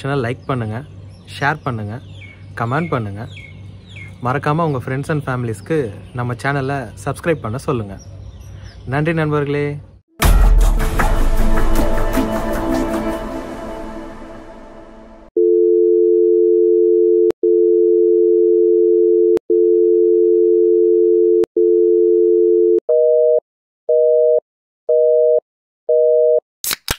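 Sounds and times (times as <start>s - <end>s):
music: 10.2s - 15.3s
telephone dial tone: 15.4s - 23.4s.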